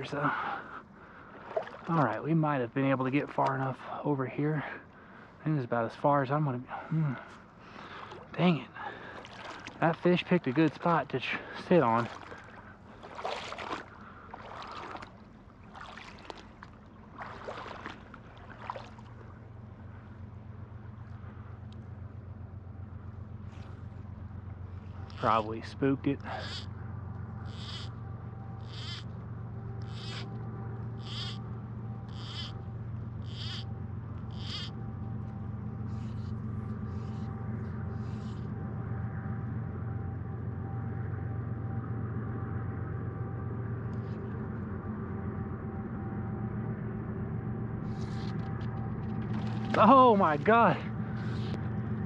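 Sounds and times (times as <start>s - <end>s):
legs wading through water: 0.0s - 4.0s, 6.7s - 22.1s, 47.9s - 52.0s
stream current rushing: 7.7s - 19.2s
animal buzzy call: 24.9s - 25.4s, 26.2s - 26.8s, 27.4s - 29.2s, 29.8s - 34.8s, 35.9s - 38.5s.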